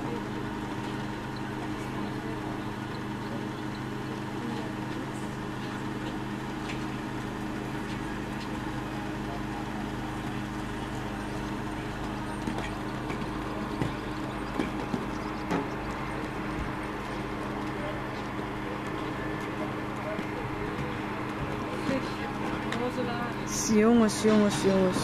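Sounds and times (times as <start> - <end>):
engine humming: 0.0 - 25.0.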